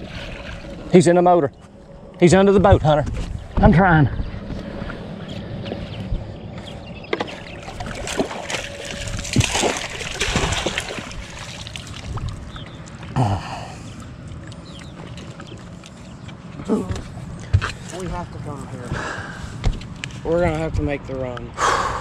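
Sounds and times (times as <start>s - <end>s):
water splashing and sloshing: 0.0s - 21.0s
fish thrashing in water: 7.2s - 12.9s.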